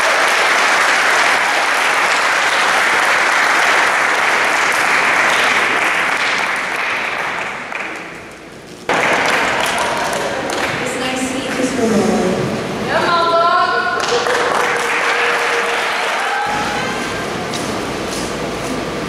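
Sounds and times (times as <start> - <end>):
audience applauding: 0.0 - 11.1, 14.0 - 17.8.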